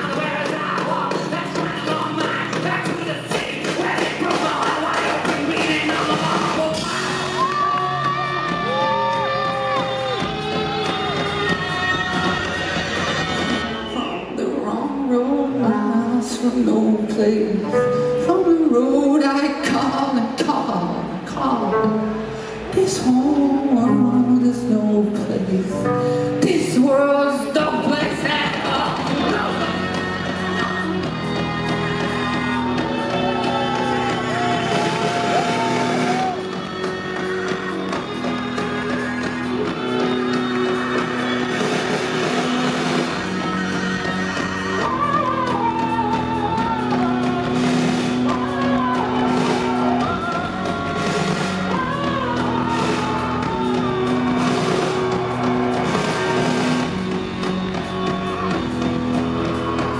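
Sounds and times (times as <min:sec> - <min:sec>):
live rock band playing: 0:00.0 - 0:14.7, 0:15.6 - 0:59.9
saxophone: 0:04.9 - 0:14.5, 0:28.7 - 0:59.9.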